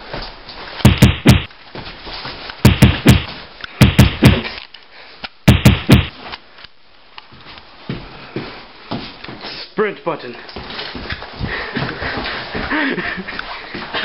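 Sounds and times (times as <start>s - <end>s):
thumps on camera microphone: 0.8s - 1.5s, 2.6s - 4.5s, 5.5s - 6.2s.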